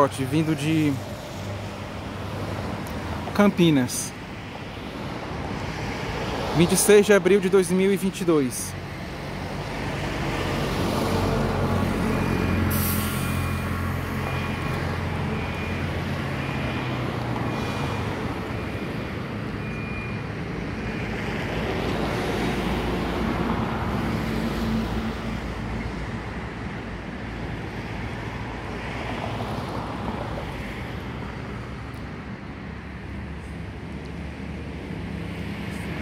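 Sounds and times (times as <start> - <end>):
road traffic: 0.0 - 36.0
high beep: 19.6 - 20.2.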